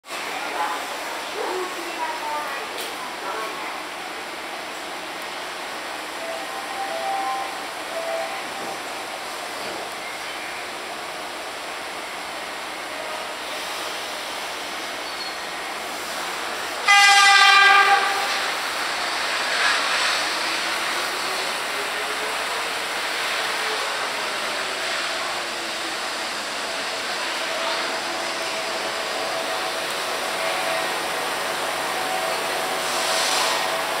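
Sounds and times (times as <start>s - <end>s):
train horn blast: 16.8s - 18.5s.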